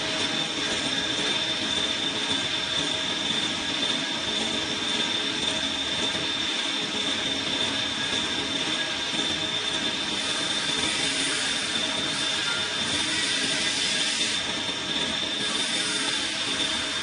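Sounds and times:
high machine whine: 0.0 - 17.0
metal lathe cutting steel pipe: 0.0 - 17.0.

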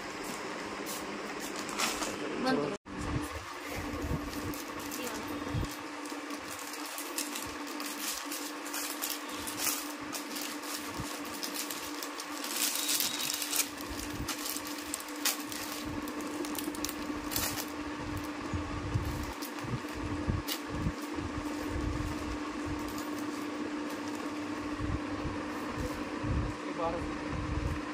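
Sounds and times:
steady low hum: 0.0 - 27.9
plastic packaging crinkling: 4.2 - 18.3, 19.0 - 20.7.

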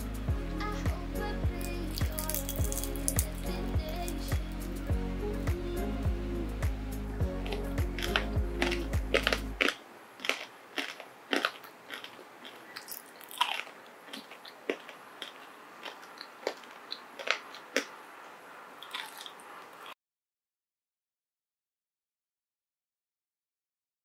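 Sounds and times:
background music: 0.0 - 9.7
crunchy food being chewed: 1.6 - 4.2, 7.4 - 18.0, 18.8 - 20.0.

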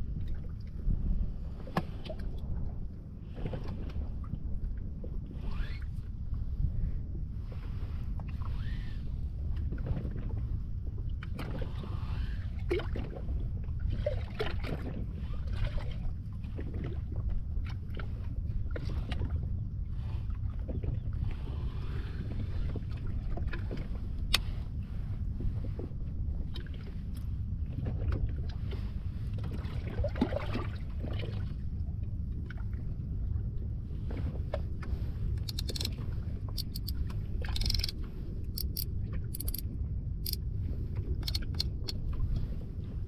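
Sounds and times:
water moving against boat: 0.0 - 43.0
fishing reel clicks: 35.4 - 35.9, 36.6 - 39.6, 41.2 - 42.0.

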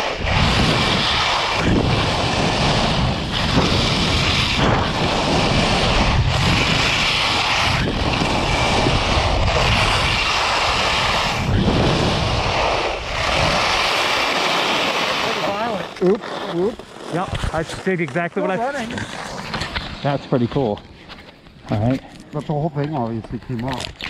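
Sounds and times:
wind on microphone: 0.0 - 16.0, 17.2 - 17.8
skis hissing over snow: 0.0 - 20.4.

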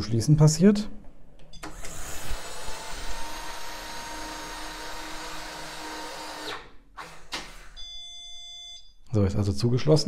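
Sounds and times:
electric motor whirring: 1.7 - 7.8.

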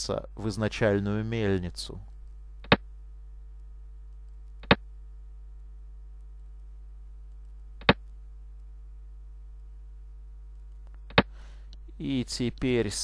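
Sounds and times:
low electrical hum: 0.0 - 13.0
sharp clicks: 7.3 - 8.7.

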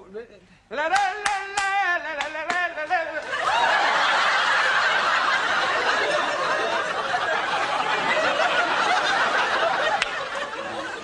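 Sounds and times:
audience laughing: 3.2 - 11.0.

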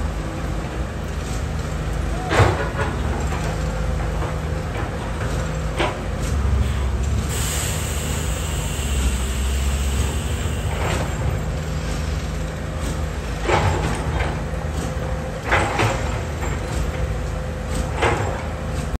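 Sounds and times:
excavator diesel engine running: 0.0 - 19.0
hydraulic hiss: 6.6 - 11.2.

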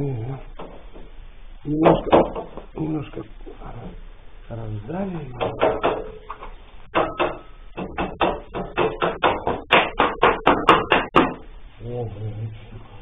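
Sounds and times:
knocks on wooden door frame: 1.8 - 2.7, 5.4 - 6.2, 6.9 - 11.4.

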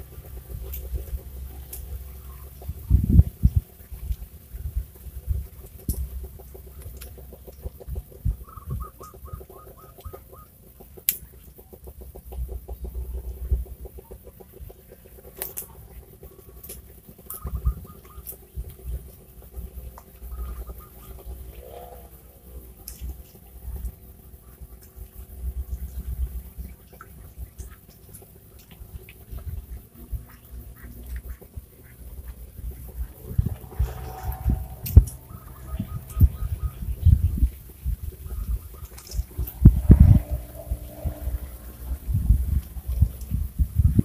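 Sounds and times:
wind buffeting microphone: 0.0 - 10.4, 17.2 - 24.4, 28.8 - 44.0
faint ticks and rustles: 0.0 - 44.0
pulsing insect chorus: 0.0 - 44.0.

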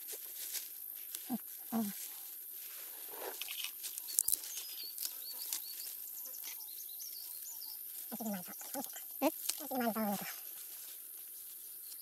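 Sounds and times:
low voice: 1.3 - 2.0
small birds chirping: 3.0 - 12.0.

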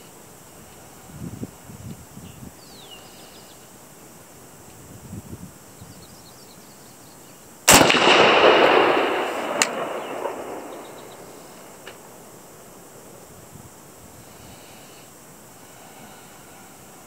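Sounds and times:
rifle shot echoing: 7.7 - 13.3.

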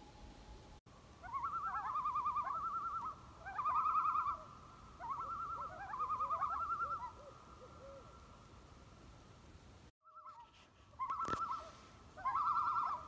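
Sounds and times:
loon tremolo calls: 1.2 - 8.2, 10.1 - 13.0.

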